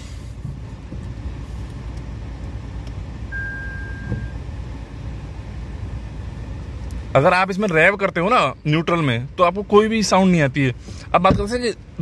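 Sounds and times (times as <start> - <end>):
car cabin low rumble: 0.0 - 12.0
high electronic beep: 3.3 - 4.4.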